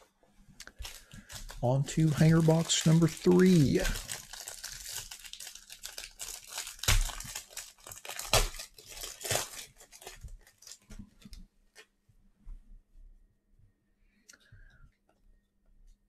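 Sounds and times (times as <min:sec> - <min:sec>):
cardboard box tearing and crinkling: 0:02.2 - 0:10.8.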